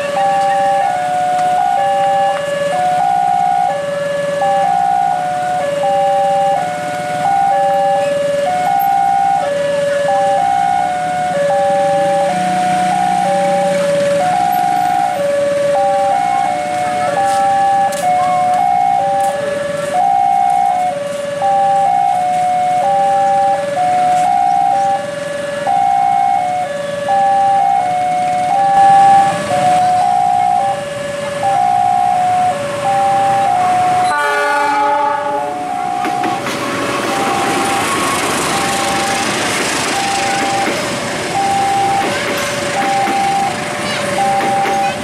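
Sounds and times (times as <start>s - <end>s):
level crossing warning chime: 0.0s - 25.1s, 25.7s - 34.3s, 37.0s - 45.0s
train passing: 0.0s - 45.0s
train horn: 34.0s - 35.8s.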